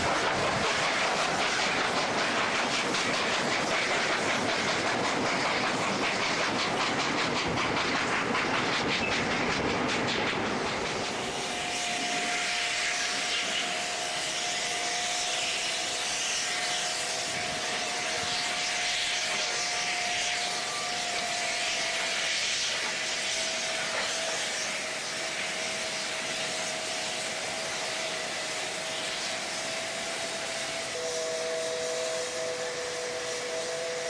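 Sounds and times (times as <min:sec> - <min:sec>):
steam hissing: 0:00.0 - 0:34.0
steady whistling tone: 0:08.4 - 0:09.6, 0:10.6 - 0:34.0.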